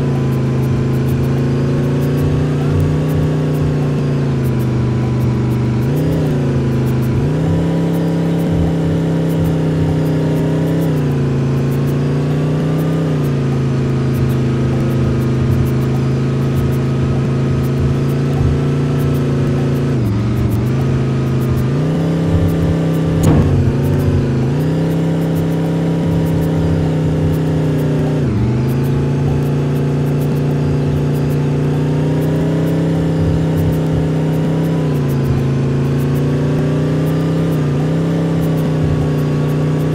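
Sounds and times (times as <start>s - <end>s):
bus engine under load: 0.0s - 39.9s
sharp knock: 23.2s - 24.5s.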